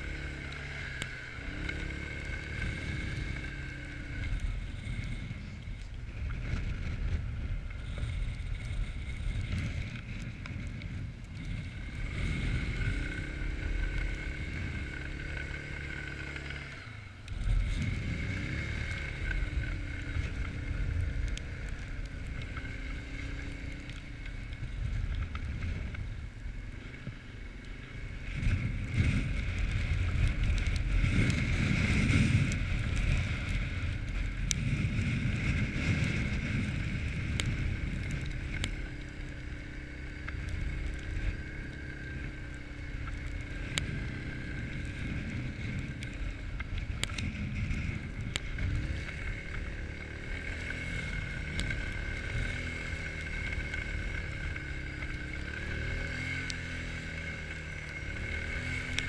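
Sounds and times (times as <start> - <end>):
quad bike engine revving: 0.0 - 5.4, 11.4 - 26.0, 26.6 - 59.0
wind noise on microphone: 28.2 - 43.0.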